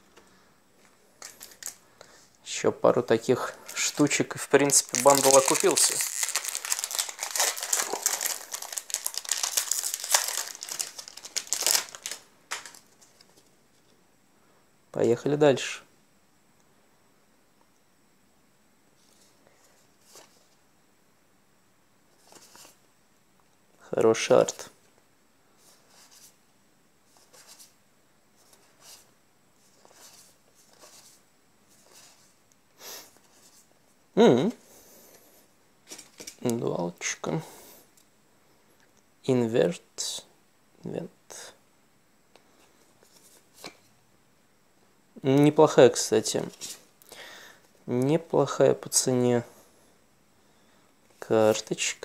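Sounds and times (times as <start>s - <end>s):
foil wrapper crinkling and tearing: 3.7s - 12.8s.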